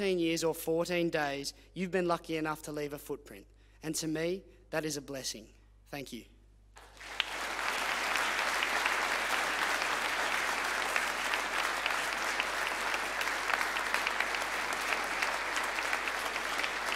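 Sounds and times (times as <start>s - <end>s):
audience applauding: 6.8s - 16.9s.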